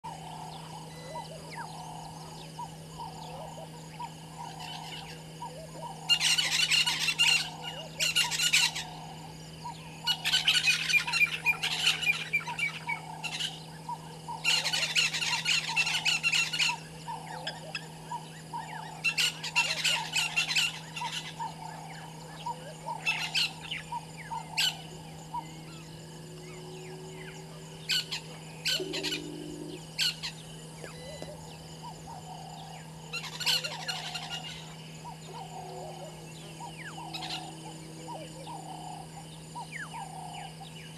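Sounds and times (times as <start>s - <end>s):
birds calling raucously: 0.0s - 40.9s
low electrical hum: 0.0s - 40.9s
soft low bird call: 22.4s - 32.5s.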